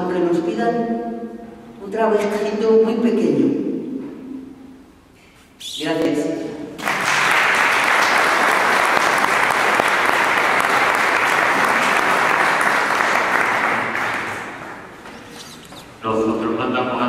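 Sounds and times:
congregation applauding: 6.8 - 15.2.

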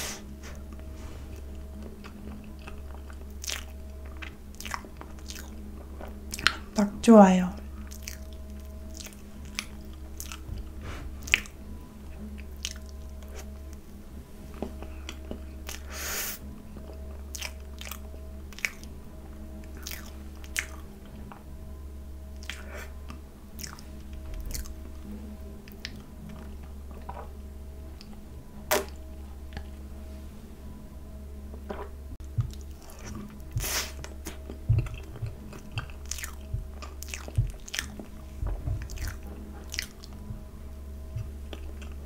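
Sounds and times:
steady low hum: 0.0 - 42.0
chewing and wet lip smacks: 1.8 - 6.8, 7.8 - 11.6, 12.2 - 13.6, 16.8 - 18.9, 19.7 - 21.4, 22.4 - 23.8, 24.4 - 24.8, 31.7 - 40.2.

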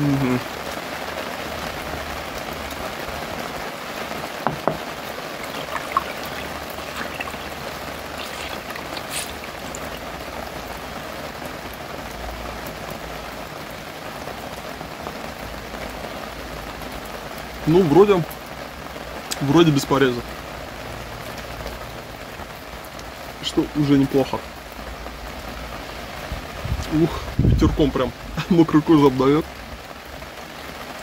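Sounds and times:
falling water patter: 0.0 - 31.0
light knocks: 4.4 - 4.9.

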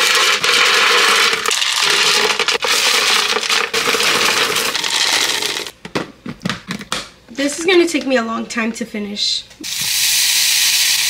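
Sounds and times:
granola poured into container: 0.0 - 5.7.

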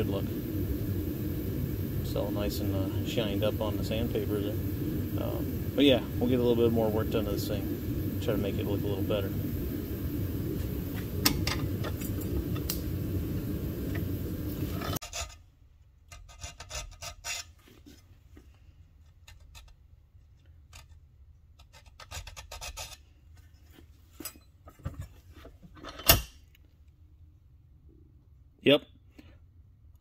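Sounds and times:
needle file rasping on steel: 16.1 - 17.6.

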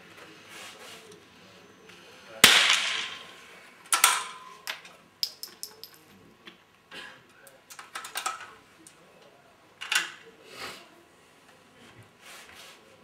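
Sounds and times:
rifle shots: 2.4 - 3.4.

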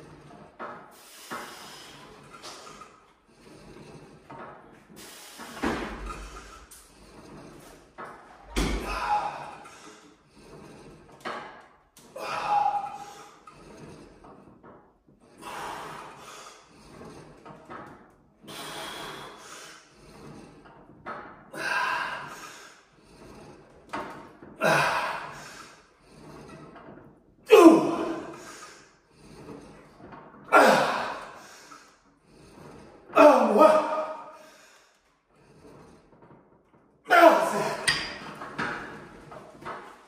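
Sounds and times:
man grunting: 27.5 - 28.3, 30.5 - 31.2, 33.2 - 34.3, 37.1 - 37.9.

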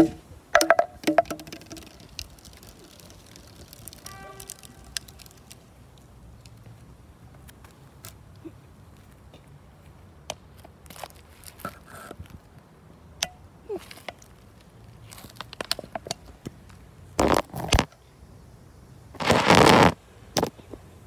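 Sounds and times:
phone rubbing on microphone: 19.2 - 20.0.

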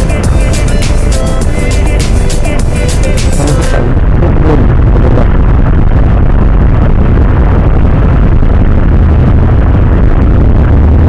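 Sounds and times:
wind buffeting microphone: 3.7 - 11.0.

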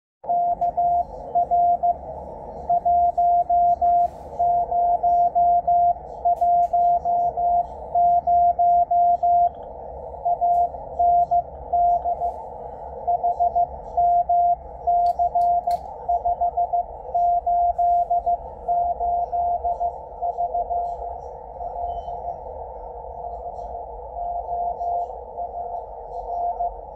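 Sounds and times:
morse code beeps: 0.2 - 2.0, 2.6 - 9.6, 10.2 - 22.2, 24.1 - 26.9.

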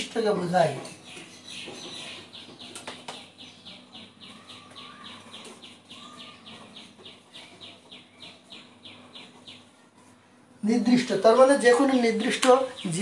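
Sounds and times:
bird chirping faintly: 0.8 - 10.2.

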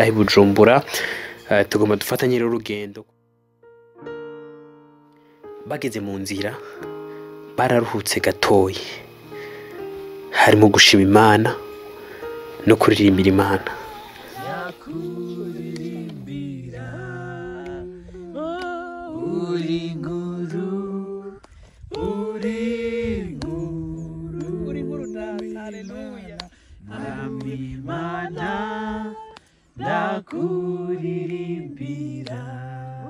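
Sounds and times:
group singing unaccompanied: 7.6 - 33.0.

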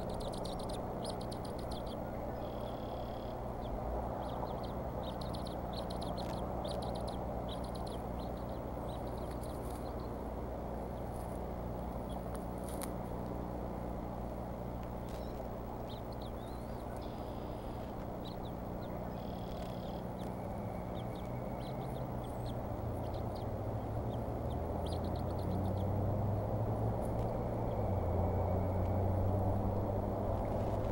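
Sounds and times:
high bird chirps: 0.0 - 10.1, 15.0 - 26.4
low hum: 0.0 - 30.9
low rumble: 0.0 - 30.9.

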